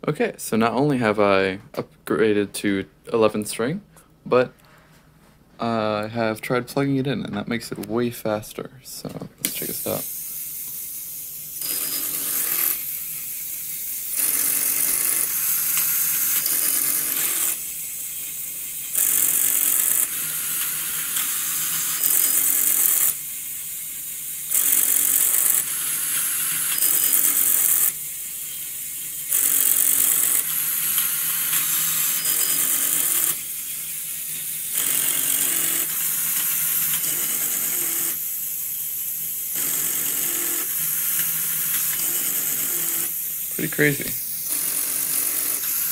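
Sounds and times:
motors and plastic gears whirring: 9.4s - 45.9s.

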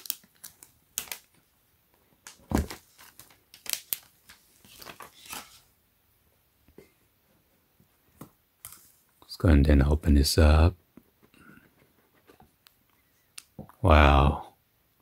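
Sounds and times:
shrink wrap crinkling: 0.0s - 1.5s, 2.2s - 5.7s.

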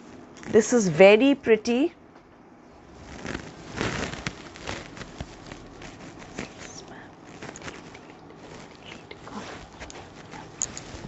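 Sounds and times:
fabric rustling and crinkling: 2.8s - 11.0s.

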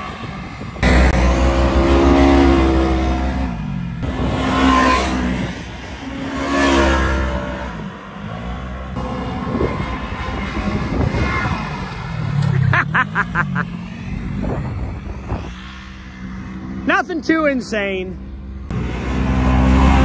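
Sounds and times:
engine revving hard: 0.8s - 13.7s, 18.7s - 20.0s.

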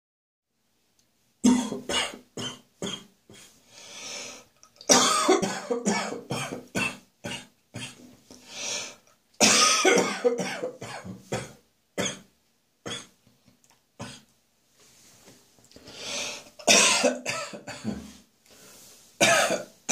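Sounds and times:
person coughing: 1.4s - 3.1s, 4.9s - 8.0s, 9.4s - 12.3s, 16.6s - 18.2s, 19.2s - 19.7s
long drawn-in breath: 3.5s - 4.5s, 8.3s - 9.0s, 15.8s - 16.6s.

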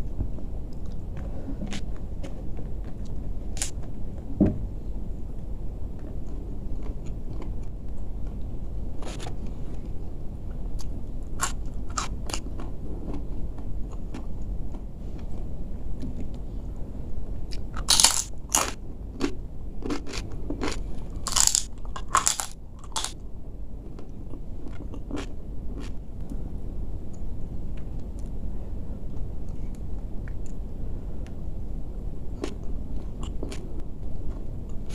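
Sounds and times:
steady low hum: 0.0s - 34.9s
person chewing crunchy food: 0.8s - 3.8s, 10.8s - 15.3s, 17.5s - 23.2s, 23.9s - 26.0s, 32.4s - 33.7s.

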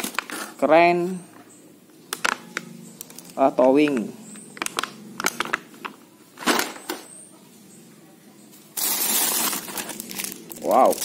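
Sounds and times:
plastic packaging clicking: 2.1s - 6.6s
plastic bag rustling: 8.7s - 11.0s.

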